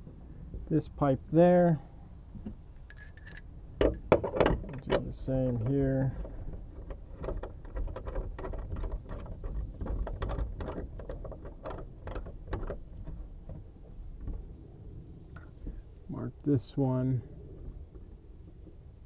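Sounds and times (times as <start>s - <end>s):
steady low rumble: 0.0s - 19.0s
clicks and knocks of copper pipe: 2.4s - 14.4s.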